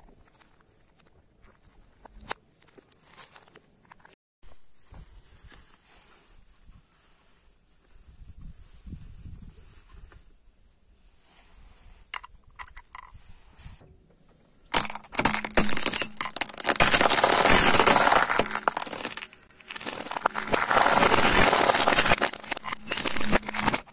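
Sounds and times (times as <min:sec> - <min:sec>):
shells clicking on stones: 0:14.7 - 0:23.9
tyre crunching over gravel: 0:15.4 - 0:23.9.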